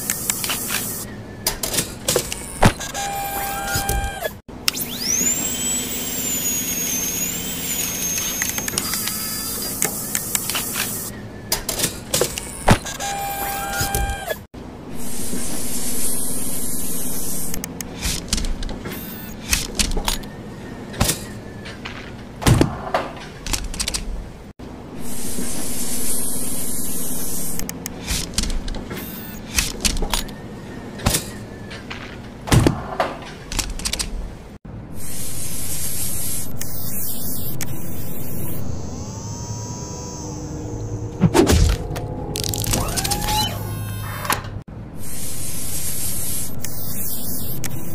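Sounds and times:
low machine hum: 0:37.8 - 0:44.6.

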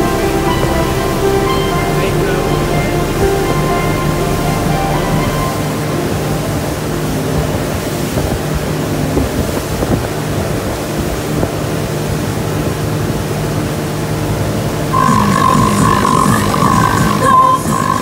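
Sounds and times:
steady high tone: 0:00.0 - 0:09.9, 0:14.9 - 0:18.0
wind buffeting microphone: 0:00.0 - 0:17.8
churning wake water: 0:00.0 - 0:18.0
motorboat engine drone: 0:00.0 - 0:18.0.

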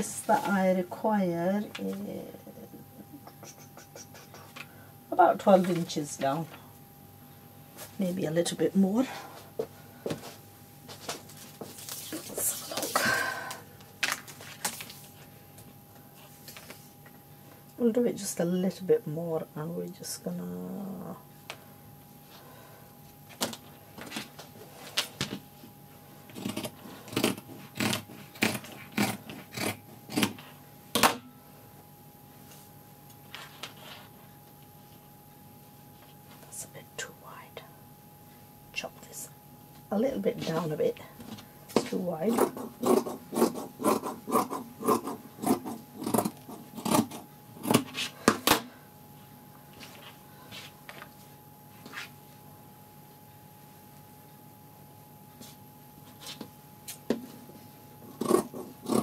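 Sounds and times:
scissors snipping fabric: 0:26.3 - 0:30.4, 0:41.9 - 0:48.0, 0:58.2 - 0:59.0.

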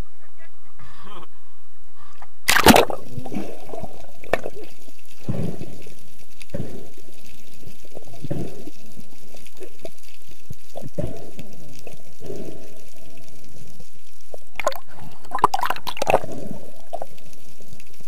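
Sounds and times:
steady hiss: 0:00.8 - 0:18.0
underwater water gurgling: 0:02.5 - 0:18.0.

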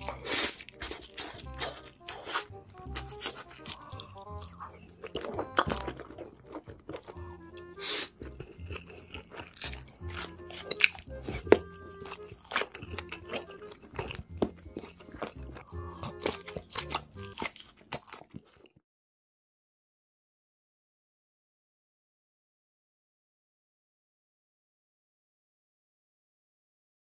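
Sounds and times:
background music: 0:00.0 - 0:18.2
crunchy bites and chewing: 0:00.0 - 0:18.8.

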